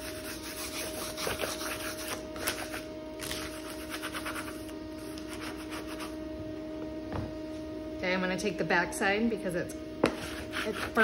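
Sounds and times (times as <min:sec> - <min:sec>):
scratchy rubbing strokes: 0:00.0 - 0:06.2, 0:10.2 - 0:11.0
steady hum: 0:00.0 - 0:11.0.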